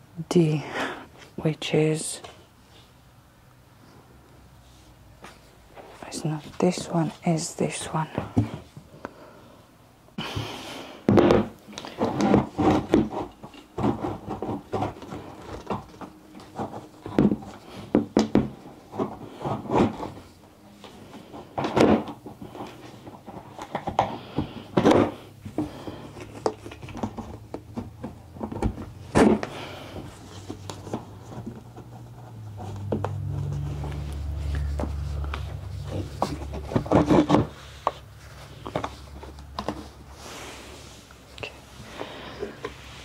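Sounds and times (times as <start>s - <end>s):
knocks and thumps of furniture parts: 8.0s - 8.9s, 10.2s - 20.3s, 21.1s - 40.0s.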